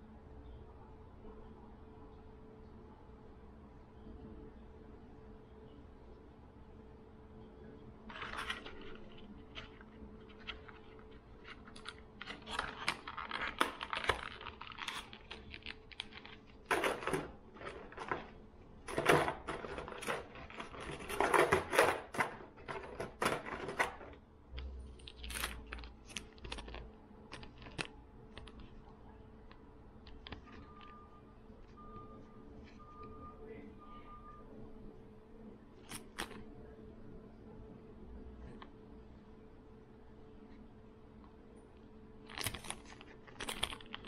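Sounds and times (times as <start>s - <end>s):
plastic packaging crinkling: 8.1s - 24.2s, 24.9s - 28.9s, 42.2s - 44.0s.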